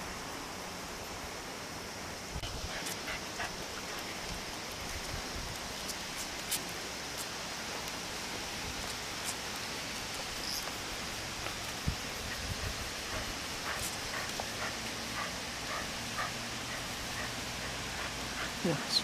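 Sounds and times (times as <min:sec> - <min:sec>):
outdoor background hiss: 0:00.0 - 0:19.0.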